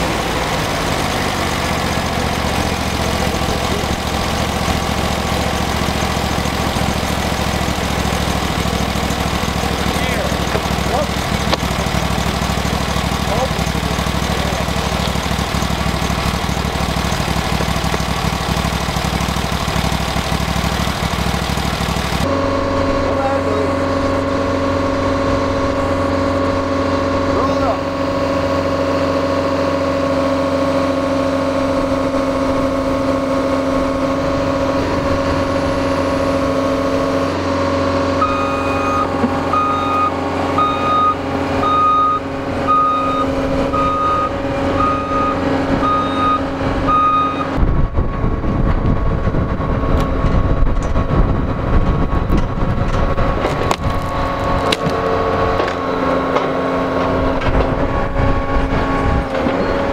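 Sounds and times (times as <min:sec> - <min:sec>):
diesel engine running: 0:00.0 - 0:59.9
rough low rumble: 0:31.5 - 0:55.9
reversing alarm beeping: 0:38.1 - 0:47.6.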